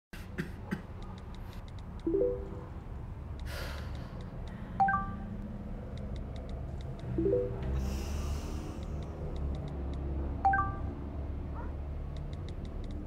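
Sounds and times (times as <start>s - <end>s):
message alert chimes: 2.1s - 2.8s, 4.8s - 5.3s, 7.2s - 7.8s, 10.4s - 10.9s
soft music: 2.1s - 2.8s, 7.2s - 7.8s
breathy sigh: 7.8s - 9.0s.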